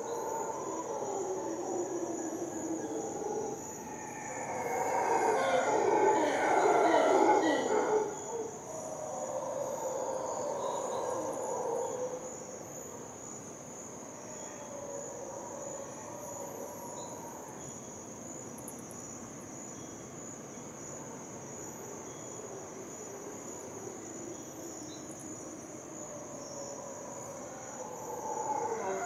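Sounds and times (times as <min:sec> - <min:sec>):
distant animal calls: 0:00.0 - 0:12.2, 0:26.7 - 0:29.0
high-pitched insect drone: 0:00.0 - 0:12.2.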